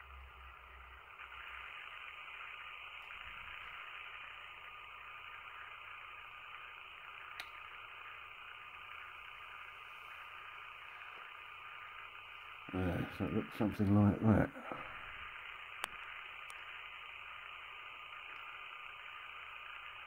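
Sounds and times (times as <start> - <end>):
faint background hiss: 0.0 - 20.0
thin steady whine: 0.0 - 20.0
small sharp click: 7.3 - 7.6.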